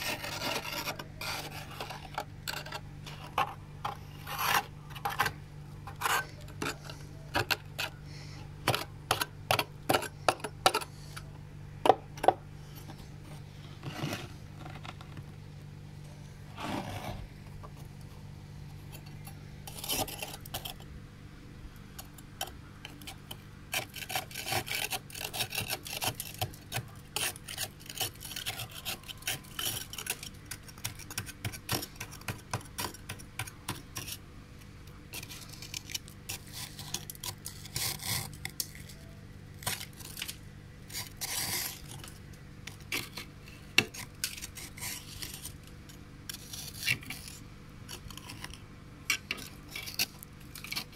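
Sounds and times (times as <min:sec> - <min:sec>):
metal spoon scraping ice: 0:00.0 - 0:08.0, 0:08.6 - 0:11.3, 0:18.8 - 0:20.9, 0:22.4 - 0:34.2, 0:35.1 - 0:50.9
steady low hum: 0:00.0 - 0:50.9.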